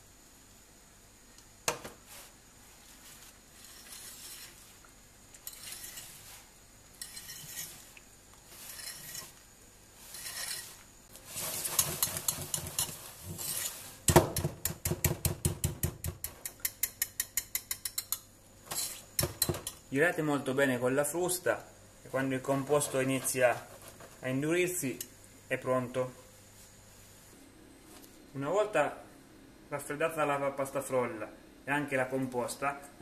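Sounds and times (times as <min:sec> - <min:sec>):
whisk stirring in a glass bowl: 0:11.3 - 0:13.7
whisk wires clicking against glass: 0:16.2 - 0:18.3.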